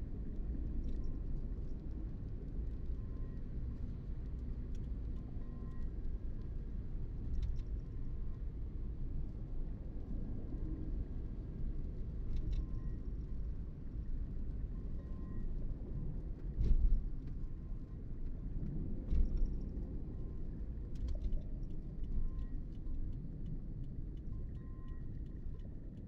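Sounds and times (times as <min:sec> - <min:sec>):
car road and tyre noise: 0:00.0 - 0:26.0.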